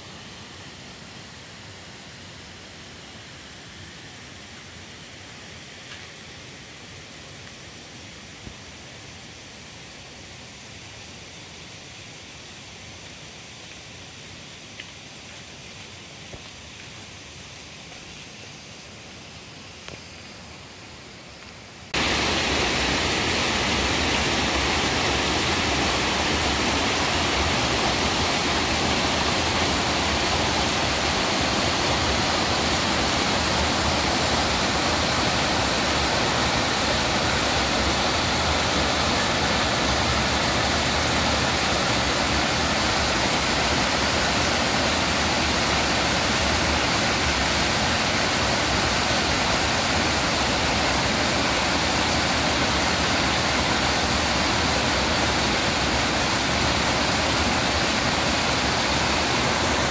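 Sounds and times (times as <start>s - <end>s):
waterfall rushing: 21.9s - 59.9s.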